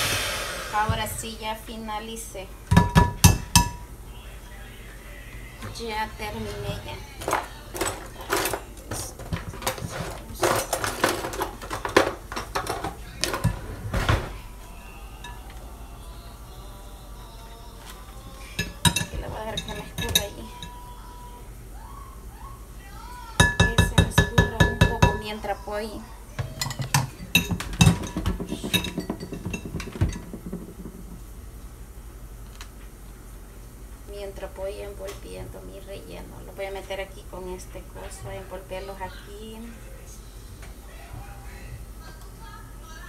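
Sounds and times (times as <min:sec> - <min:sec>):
mixer beaters clinking on glass bowl: 0:18.6 - 0:20.8, 0:23.4 - 0:25.4, 0:26.6 - 0:30.9.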